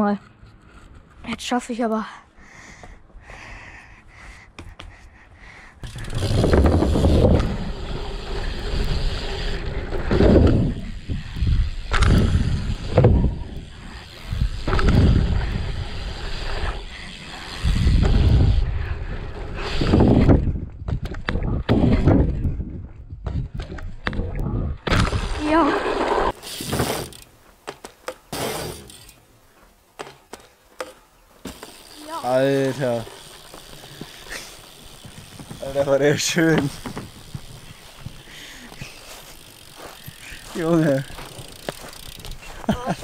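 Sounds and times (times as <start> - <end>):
bike tyres on dirt: 4.8 - 43.0.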